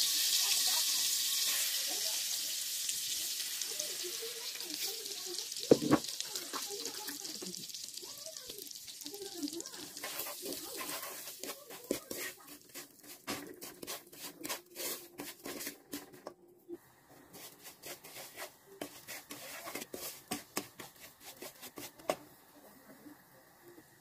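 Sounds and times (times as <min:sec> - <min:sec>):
spoon knocking pan: 0:05.6 - 0:07.6
wooden spoon scraping pan: 0:09.8 - 0:16.3, 0:17.3 - 0:22.2.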